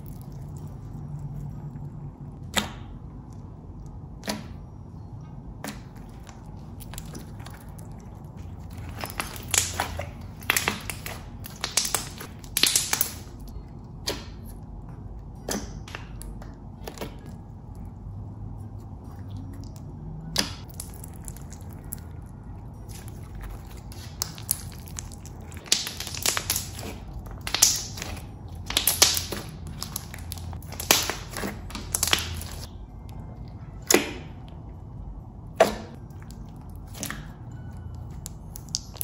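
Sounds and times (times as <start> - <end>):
sharp slime pops and clicks: 2.4 - 3.0, 9.0 - 13.4, 14.0 - 14.5, 24.0 - 32.7, 33.8 - 34.3.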